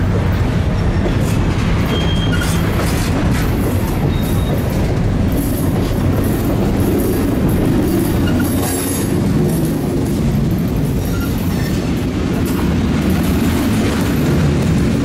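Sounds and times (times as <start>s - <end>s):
freight train wheels rumbling on rails: 0.0s - 15.0s.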